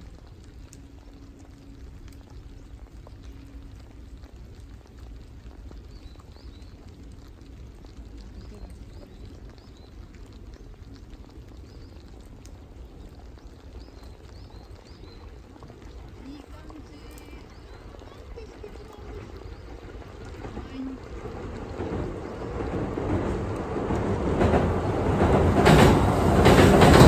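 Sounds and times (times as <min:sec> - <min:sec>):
faint bird chirps: 0:08.1 - 0:10.1, 0:11.5 - 0:19.9.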